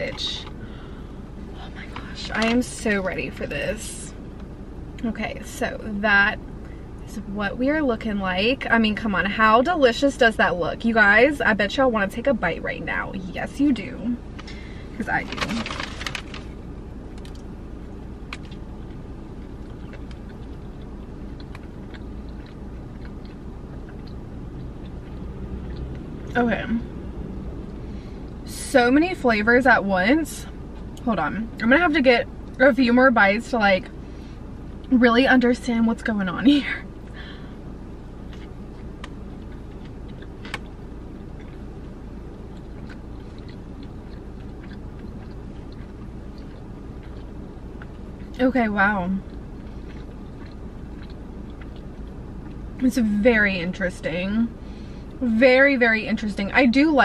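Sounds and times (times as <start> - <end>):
low hum in car cabin: 0.0 - 57.0
person chewing crunchy food: 15.3 - 28.4, 37.0 - 48.4, 49.2 - 52.8.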